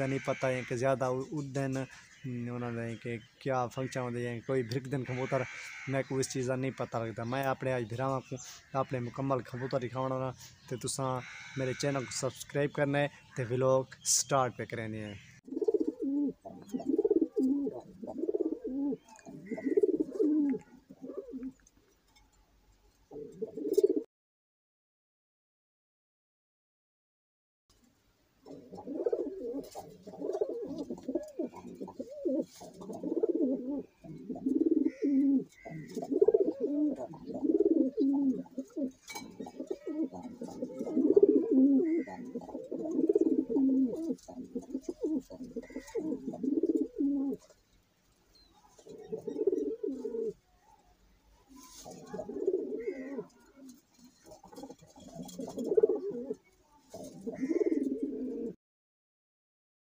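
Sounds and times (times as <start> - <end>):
pigeons cooing: 0.0 - 13.3, 15.2 - 21.6, 23.0 - 24.1, 28.4 - 47.7, 48.4 - 50.4, 51.4 - 58.6.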